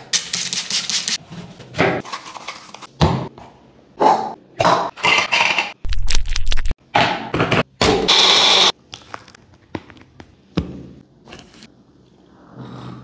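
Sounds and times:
mixer grinder running: 8.1 - 8.7.

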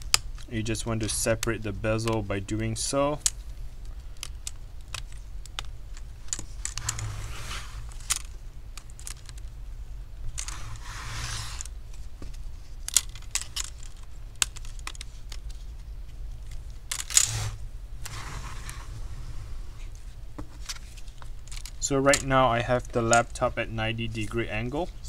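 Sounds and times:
tape peeling rustle: 6.3 - 9.4, 10.3 - 21.8.

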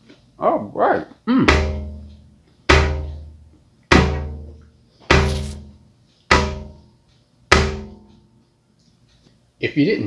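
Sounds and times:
deep drum hits: 1.4 - 3.3, 3.9 - 4.5.

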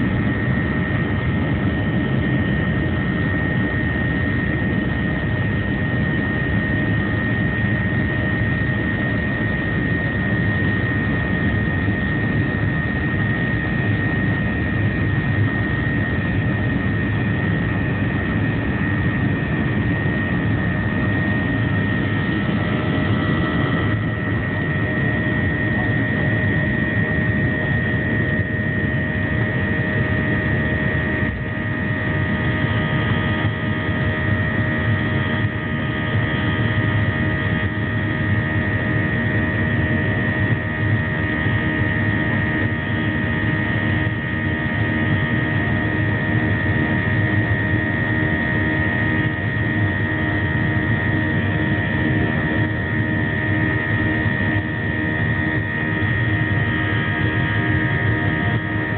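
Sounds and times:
jet engines rushing and whining: 0.0 - 58.9.

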